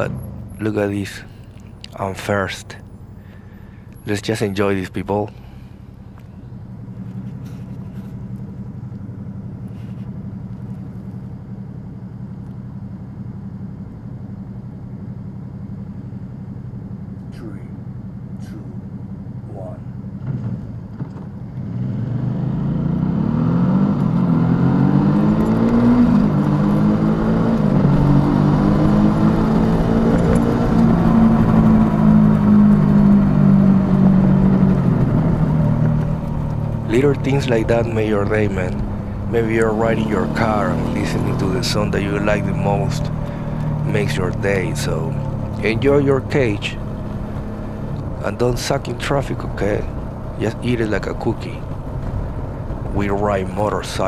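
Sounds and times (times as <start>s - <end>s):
motorcycle engine cruising: 0.0s - 54.0s
wind and road noise: 0.0s - 54.0s
motorcycle engine idling: 35.8s - 39.9s.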